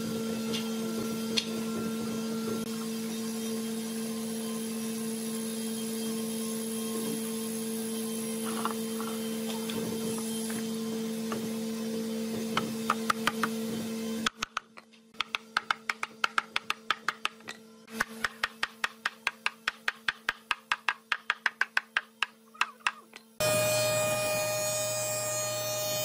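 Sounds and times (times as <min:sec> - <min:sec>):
hammer striking wooden board: 0:12.6 - 0:13.6, 0:14.2 - 0:23.0.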